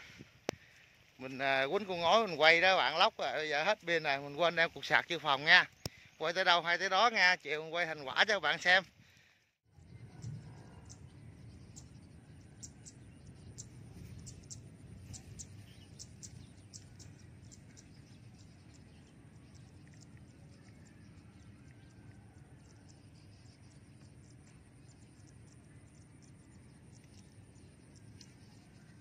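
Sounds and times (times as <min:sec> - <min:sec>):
low wind rumble: 0:08.4 - 0:29.0.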